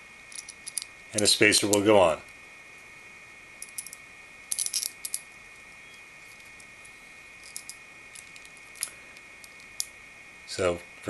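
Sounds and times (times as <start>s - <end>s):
faint high-pitched hum: 0.0s - 11.0s
small metal clicks and clinks: 0.3s - 1.8s, 3.6s - 5.3s, 7.4s - 9.9s.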